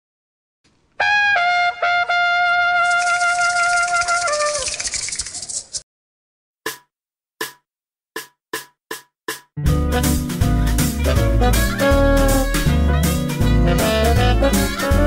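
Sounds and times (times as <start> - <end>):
trumpet jingle: 1.0 - 4.7, 11.0 - 15.0.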